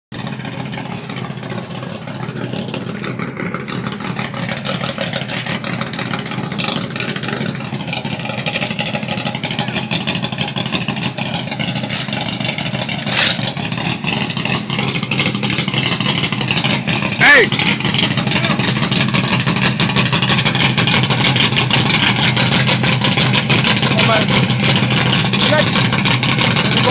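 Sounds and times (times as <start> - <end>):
pickup engine revving high: 0.2 - 26.9
sharp crack: 10.6 - 19.8.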